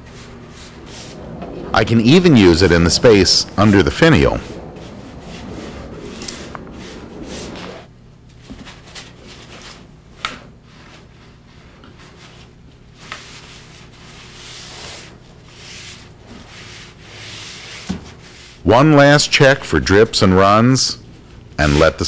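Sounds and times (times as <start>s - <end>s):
cloth pad rubbing on wood: 13.2s - 18.6s.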